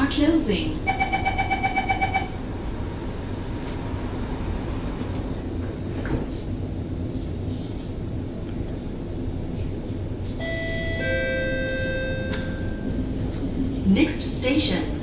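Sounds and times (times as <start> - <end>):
train car rumble and hum: 0.0 - 15.0
door warning beeping: 0.9 - 2.4, 10.4 - 13.0.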